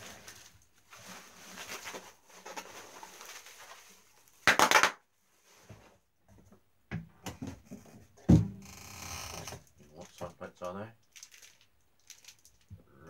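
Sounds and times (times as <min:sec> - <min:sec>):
plastic packaging rustling: 0:00.0 - 0:04.7, 0:11.0 - 0:12.7
loud bubble wrap crackle: 0:00.0 - 0:05.0, 0:11.1 - 0:12.6.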